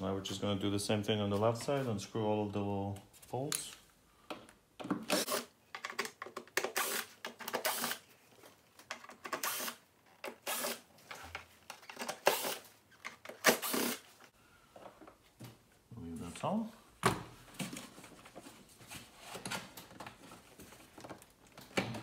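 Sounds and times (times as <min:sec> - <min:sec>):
cordless screwdriver running: 0:12.2 - 0:12.6, 0:13.4 - 0:14.0.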